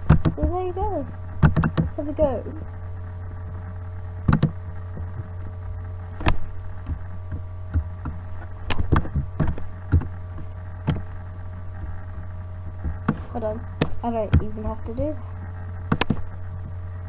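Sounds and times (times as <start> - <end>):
low electrical hum: 0.0 - 17.0
computer mouse clicks: 15.9 - 16.2.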